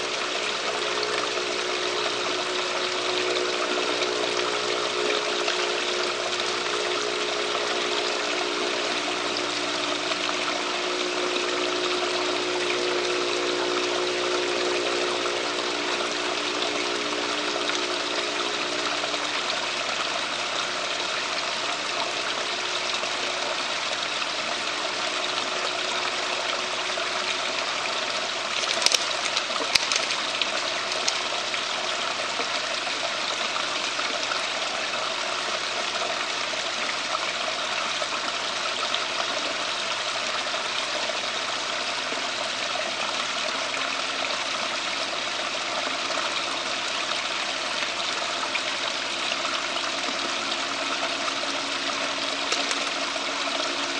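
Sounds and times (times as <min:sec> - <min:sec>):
running water rushing: 0:00.0 - 0:53.9
sharp clicks: 0:28.6 - 0:31.2, 0:52.5 - 0:52.9.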